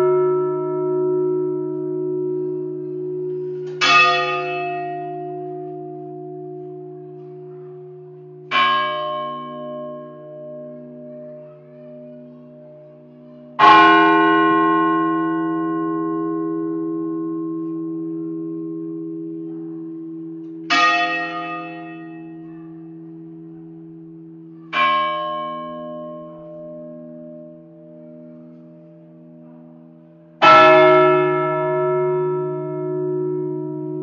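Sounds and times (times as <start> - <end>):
large bell ringing: 0.0 - 34.0.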